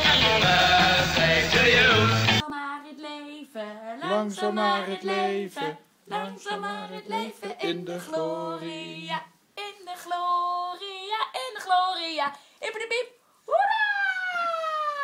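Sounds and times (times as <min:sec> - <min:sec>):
woman singing unaccompanied: 0:02.4 - 0:13.1.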